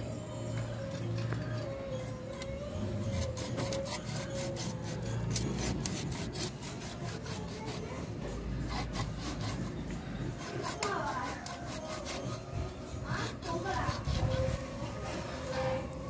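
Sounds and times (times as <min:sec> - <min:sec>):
cleaver cutting fish on stone: 0:03.1 - 0:14.5.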